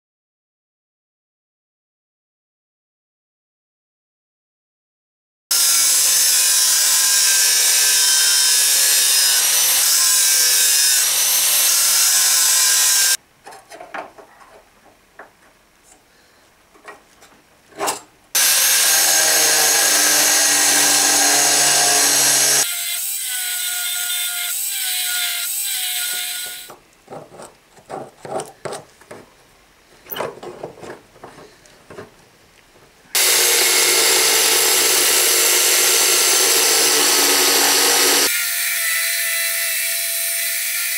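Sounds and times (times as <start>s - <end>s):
angle grinder grinding metal: 5.5s - 13.2s, 18.4s - 26.8s, 33.2s - 40.9s
grinder running with whine: 5.5s - 13.2s, 18.4s - 22.7s, 33.2s - 38.4s
small knocks: 26.7s - 29.4s, 30.0s - 33.0s.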